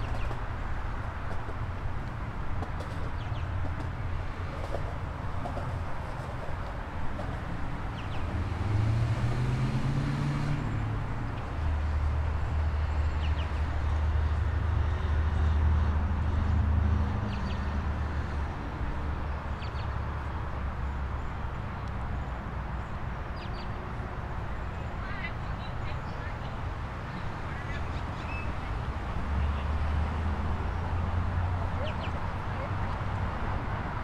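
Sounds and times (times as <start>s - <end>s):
vehicle engine drone: 0.0s - 22.9s
city background noise: 0.0s - 34.0s.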